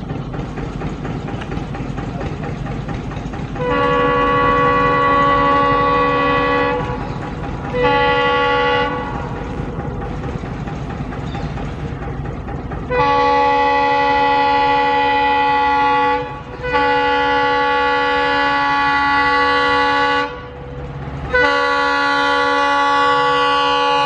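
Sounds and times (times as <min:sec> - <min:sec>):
low rumble of approaching train: 0:00.0 - 0:24.0
locomotive air horn blasts: 0:03.6 - 0:07.1, 0:07.7 - 0:09.4, 0:12.9 - 0:20.7, 0:21.3 - 0:24.0.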